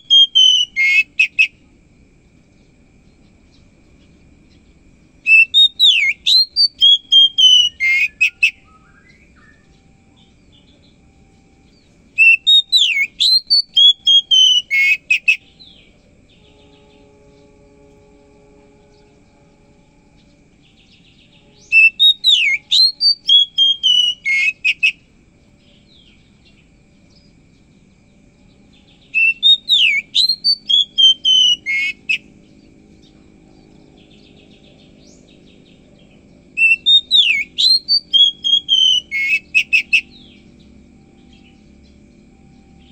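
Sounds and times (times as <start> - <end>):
bird singing whistled phrases: 0.0 - 1.5, 5.2 - 17.6, 20.7 - 25.0, 28.9 - 32.3, 36.5 - 41.6.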